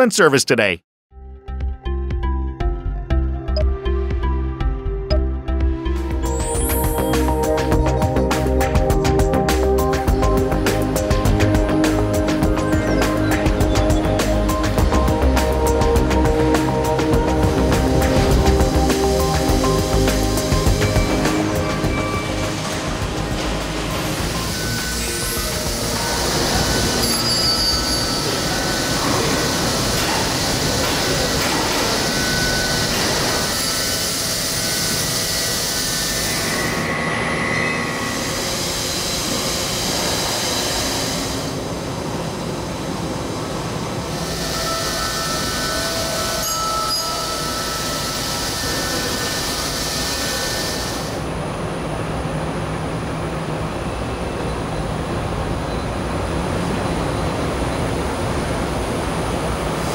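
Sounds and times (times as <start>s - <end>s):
thin whining cutting tones: 44.1s - 51.0s.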